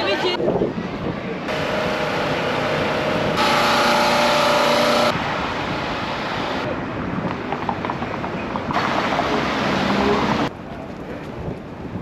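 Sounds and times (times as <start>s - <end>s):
road traffic: 0.0s - 12.0s.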